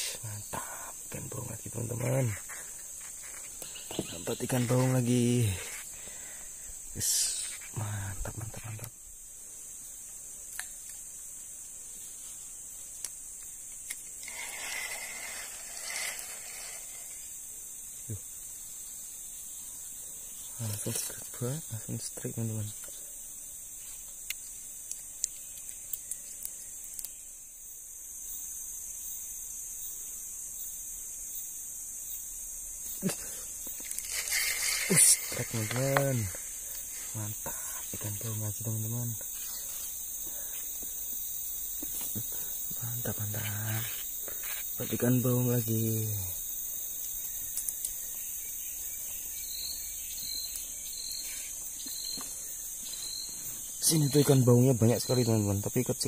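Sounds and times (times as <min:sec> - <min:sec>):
forest insects droning: 0:00.0 - 0:56.0
small sharp clicks: 0:10.5 - 0:11.0, 0:24.2 - 0:27.2, 0:47.5 - 0:48.1.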